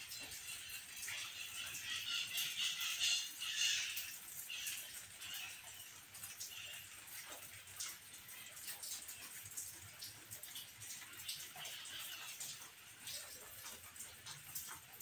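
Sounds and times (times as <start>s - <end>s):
birds chirping and calling: 0.1s - 7.0s.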